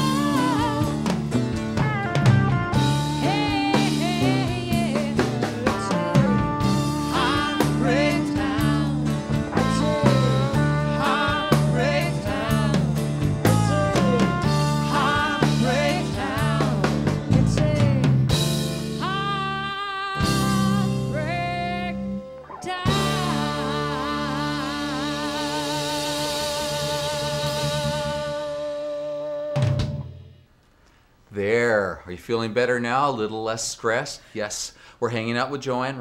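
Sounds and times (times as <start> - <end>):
woman singing: 0.0 - 1.2, 2.8 - 18.2, 19.0 - 29.2
live band playing: 0.0 - 30.5.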